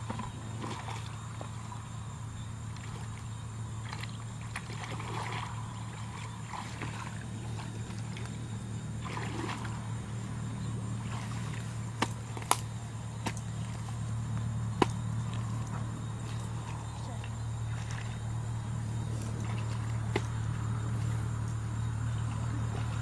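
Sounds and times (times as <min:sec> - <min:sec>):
muddy water sloshing: 0:00.0 - 0:23.0
steady low hum: 0:00.0 - 0:23.0
hoe knocking into mud: 0:11.2 - 0:13.9, 0:14.7 - 0:16.4, 0:19.3 - 0:20.4.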